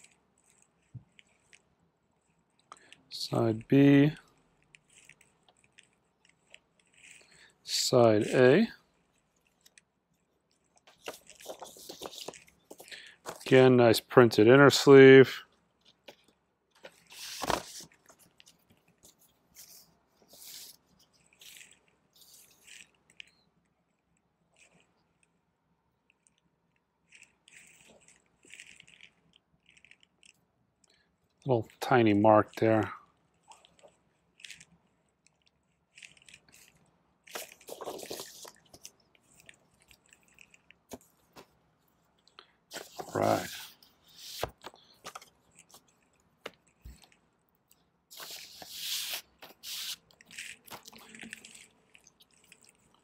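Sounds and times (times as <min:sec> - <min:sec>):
record sleeves rustling: 0:03.3 - 0:15.2, 0:15.8 - 0:23.4, 0:36.0 - 0:42.1, 0:42.7 - 0:47.2, 0:48.1 - 0:53.0.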